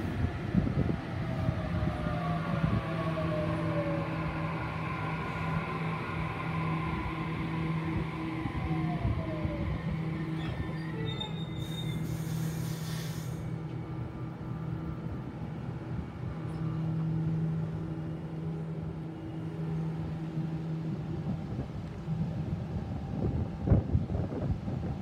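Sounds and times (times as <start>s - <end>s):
electric train hum: 0.0s - 25.0s
train wheel rumble: 0.0s - 25.0s
brief hiss: 12.0s - 13.5s.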